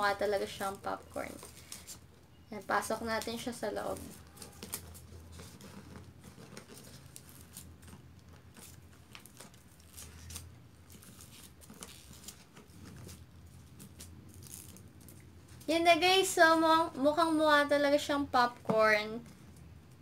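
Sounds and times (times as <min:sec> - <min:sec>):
slime crackling and crinkling: 0:00.0 - 0:20.0.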